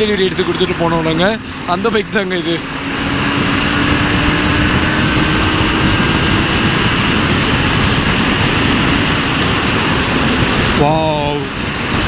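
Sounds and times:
motorcycle engine drone: 0:00.0 - 0:12.0
wind rushing on microphone: 0:00.0 - 0:12.0.

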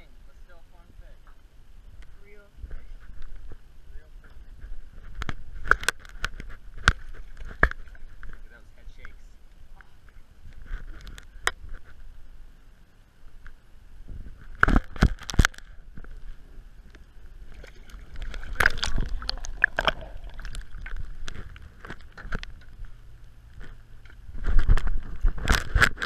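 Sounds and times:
water splashing against a boat: 0:14.0 - 0:26.0.

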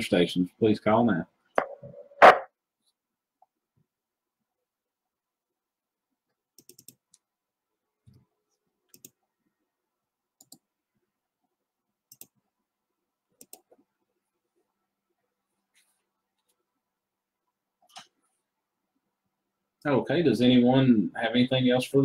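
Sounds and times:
sharp computer clicks: 0:06.6 - 0:07.2.

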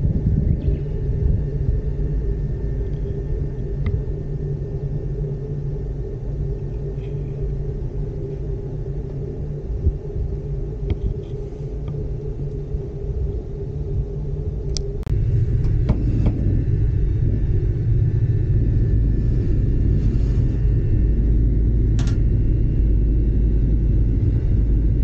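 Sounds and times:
gondola cabin rumble and hum: 0:00.0 - 0:25.0.

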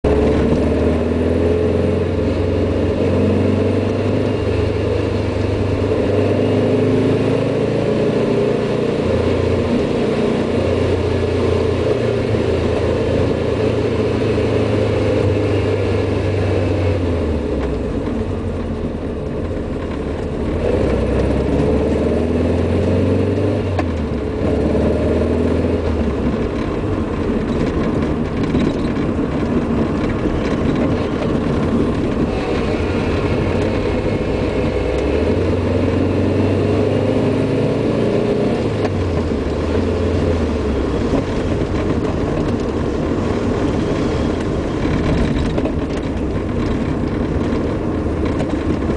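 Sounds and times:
car engine under load: 0:00.0 - 0:48.9.

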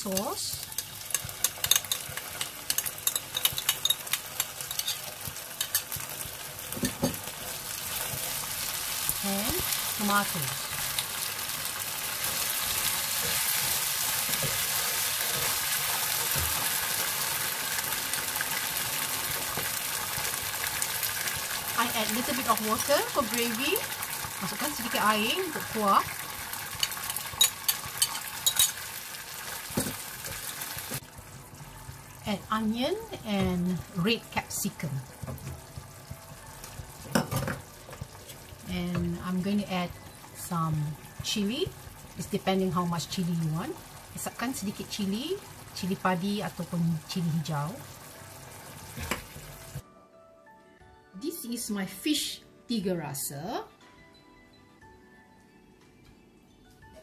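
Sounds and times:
sauce sizzling in a frying pan: 0:00.0 - 0:49.8
spoon and spatula scraping pan: 0:00.7 - 0:06.2, 0:26.7 - 0:28.8.

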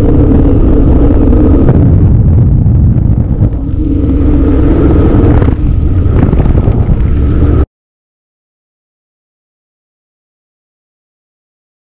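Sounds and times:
racing car engine at speed: 0:00.0 - 0:07.7
wind rush: 0:00.0 - 0:07.7.

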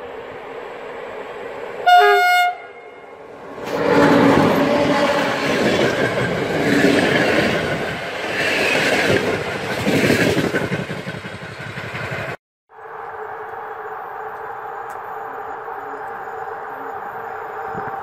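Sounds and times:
train wheels clattering on rails: 0:03.6 - 0:12.4.

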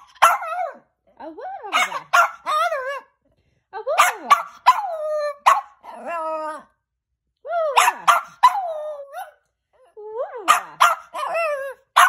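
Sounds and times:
small dog barking and yowling: 0:00.0 - 0:00.9, 0:01.7 - 0:03.1, 0:04.0 - 0:06.7, 0:07.7 - 0:09.4, 0:10.5 - 0:12.0.

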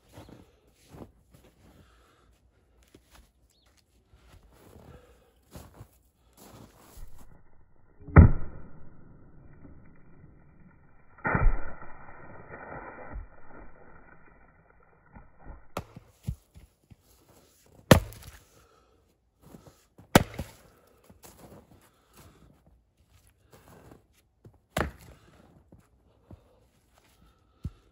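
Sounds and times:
axe striking firewood: 0:07.0 - 0:14.5, 0:15.1 - 0:16.6, 0:17.9 - 0:18.5, 0:20.1 - 0:20.8, 0:24.7 - 0:25.3.

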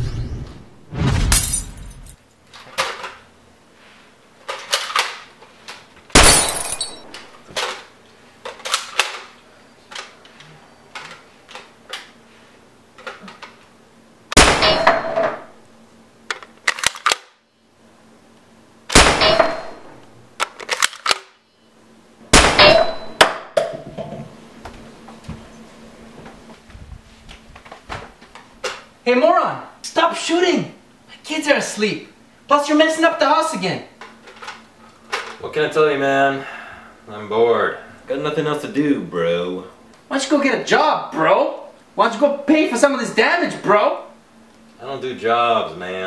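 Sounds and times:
objects crashing and clanging: 0:00.0 - 0:02.2.

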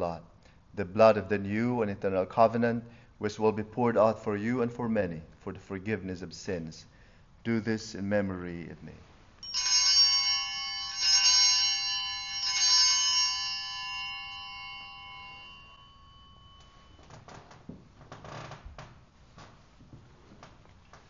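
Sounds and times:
altar bells ringing: 0:09.4 - 0:17.3
rustling: 0:14.2 - 0:21.0.

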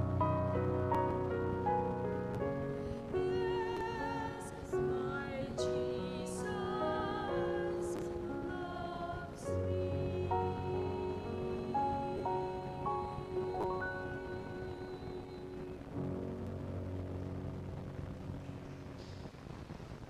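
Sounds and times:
keyboard accompaniment: 0:00.0 - 0:19.5
choir singing a hymn: 0:03.1 - 0:15.9.

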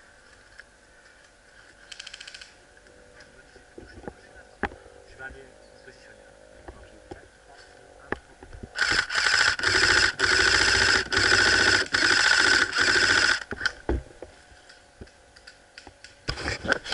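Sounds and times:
airsoft rifle firing bursts: 0:08.8 - 0:13.5.

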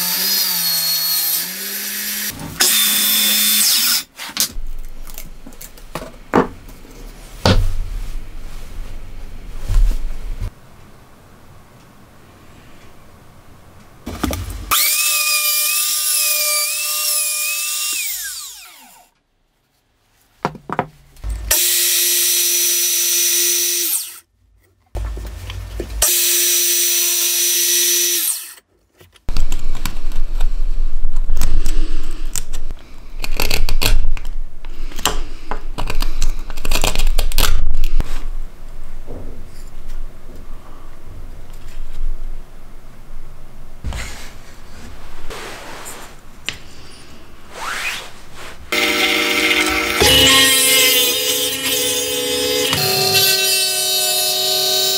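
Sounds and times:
electric motor running: 0:48.8 - 0:53.4
saw cutting wood with knocks: 0:48.8 - 0:54.7
miter saw motor: 0:48.8 - 0:54.9.

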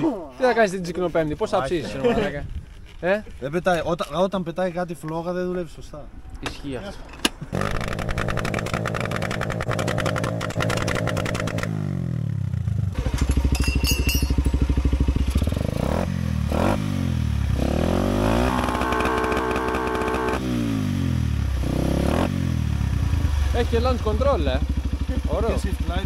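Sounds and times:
motorcycle engine revving: 0:07.5 - 0:26.0.

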